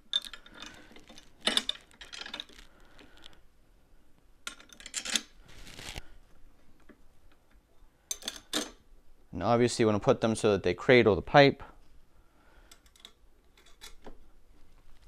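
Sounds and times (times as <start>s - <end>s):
small steel parts clinking: 0.0s - 2.7s, 4.5s - 5.3s.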